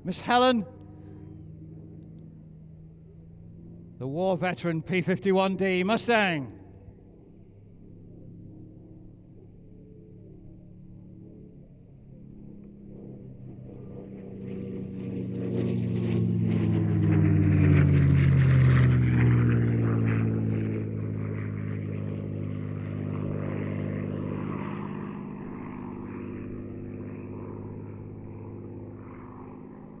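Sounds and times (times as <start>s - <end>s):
propeller aircraft engine fly-past: 0.0s - 30.0s.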